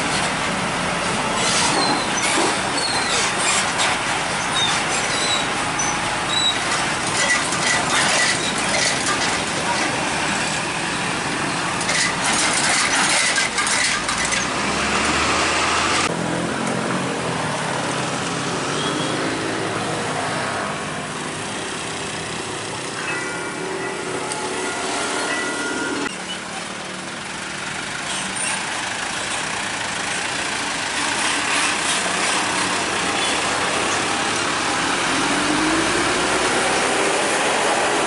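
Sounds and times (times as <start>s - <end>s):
truck diesel engines: 0.0s - 38.0s
wheels clattering over rails: 1.0s - 10.6s, 11.4s - 14.7s.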